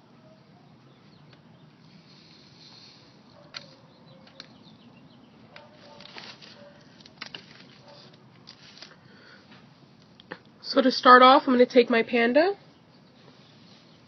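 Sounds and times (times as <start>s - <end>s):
low steady hiss: 0.0s - 14.0s.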